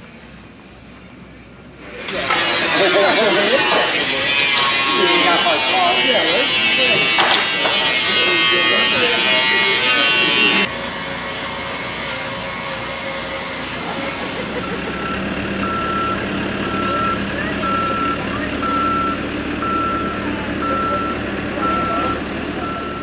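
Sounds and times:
reversing alarm beeping: 2.3 - 23.0
vehicle engine running: 10.6 - 23.0.

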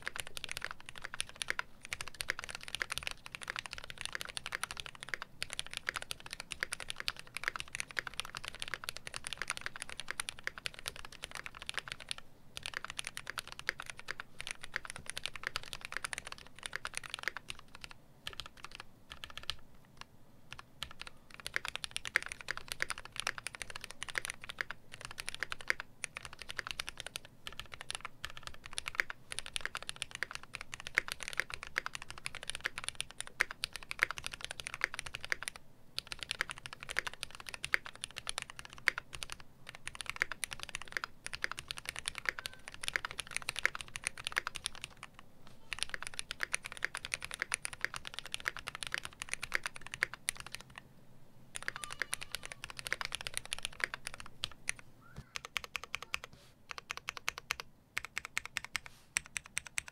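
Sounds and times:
mechanical keyboard typing: 0.0 - 50.8, 51.6 - 59.9.

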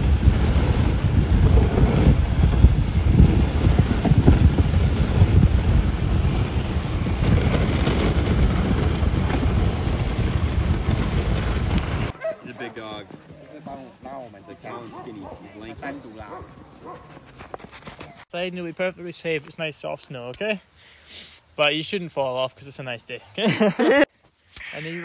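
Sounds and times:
sled hissing over snow: 0.0 - 12.2
wind buffeting microphone: 0.0 - 14.0.

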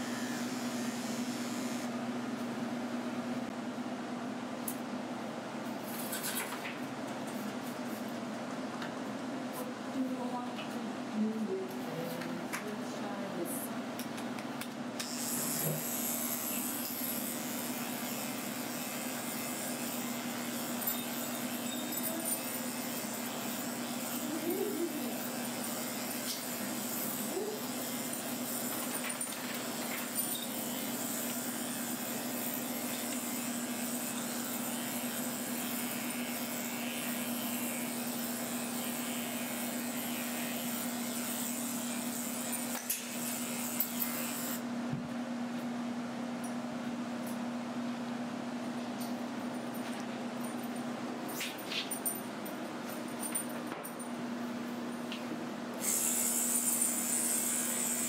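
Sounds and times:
electric clippers humming: 0.0 - 2.5, 15.0 - 44.7, 55.8 - 58.0.

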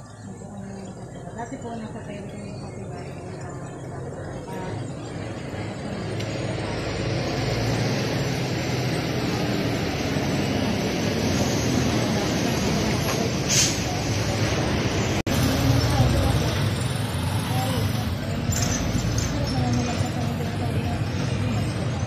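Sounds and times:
road traffic noise: 0.0 - 22.0
vehicle engine running: 0.0 - 22.0
short hiss: 13.5 - 13.9.

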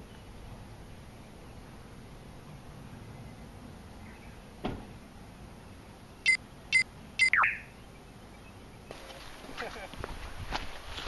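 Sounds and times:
high-pitched beeps: 6.3 - 7.7.

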